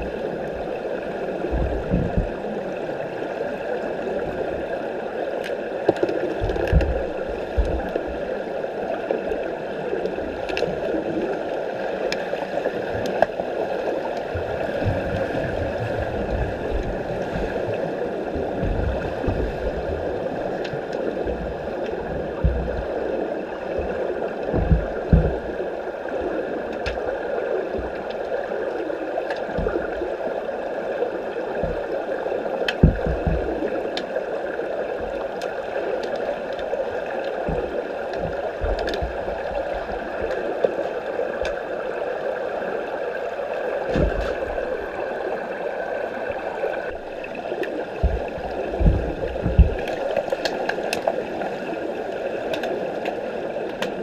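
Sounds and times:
muffled underwater water wash: 0.0 - 54.0
low thumps: 24.5 - 25.4, 48.0 - 50.2.

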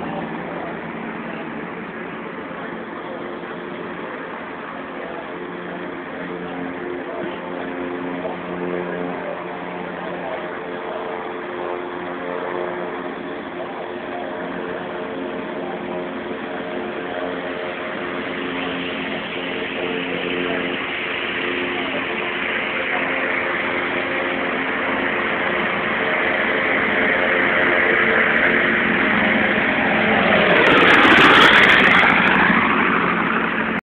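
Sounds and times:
airplane engines droning: 0.0 - 33.8.

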